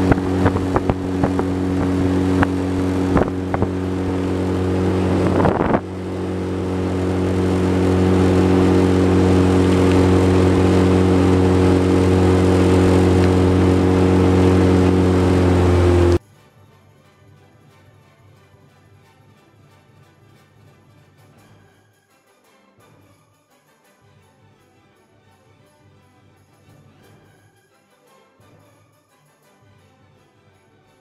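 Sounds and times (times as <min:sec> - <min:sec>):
outboard motor running: 0:00.0 - 0:16.2.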